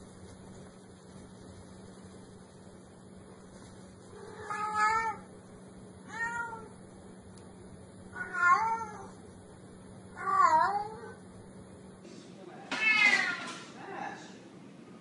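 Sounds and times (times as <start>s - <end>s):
cat meowing: 4.2s - 5.3s, 6.1s - 6.7s, 8.1s - 9.2s, 10.2s - 11.2s, 12.7s - 13.6s.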